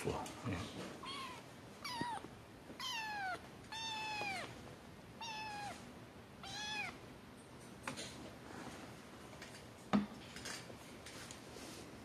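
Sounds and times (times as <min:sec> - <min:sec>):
kitten mewing: 0:01.0 - 0:04.5, 0:05.2 - 0:05.8, 0:06.4 - 0:07.0.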